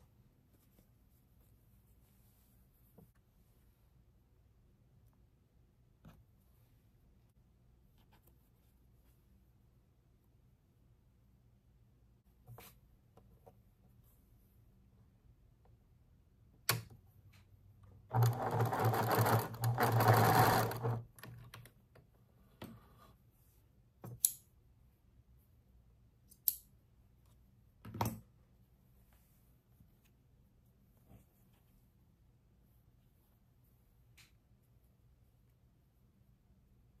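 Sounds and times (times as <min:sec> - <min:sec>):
electric sewing machine stitching: 0:18.1 - 0:21.1.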